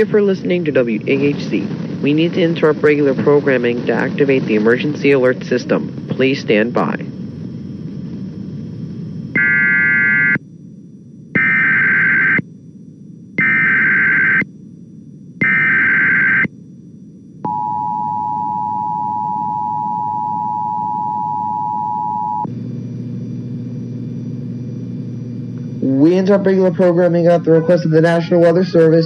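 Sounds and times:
low steady hum: 0:00.0 - 0:29.0
buzzing data bursts: 0:09.3 - 0:10.4, 0:11.4 - 0:12.4, 0:13.4 - 0:14.5, 0:15.4 - 0:16.5.

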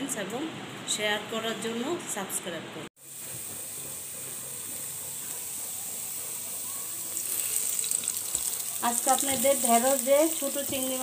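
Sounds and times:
onions sizzling in hot oil: 0:03.0 - 0:11.0.

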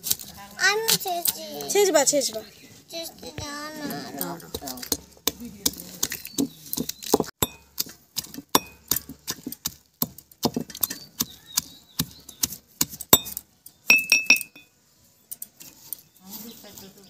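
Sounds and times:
pestle pounding fruit in stone mortar: 0:03.4 - 0:14.5
ringing clink: 0:13.9 - 0:14.7.

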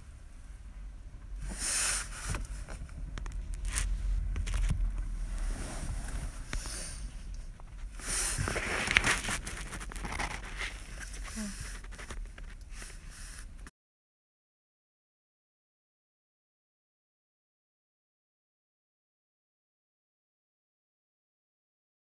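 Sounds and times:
low rumble: 0:00.0 - 0:13.0
crackles and clicks: 0:02.2 - 0:13.7.

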